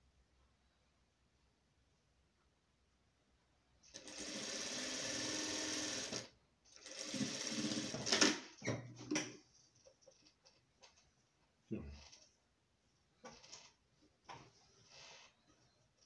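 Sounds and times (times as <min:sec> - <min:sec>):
sewing machine stitching: 0:03.8 - 0:08.5.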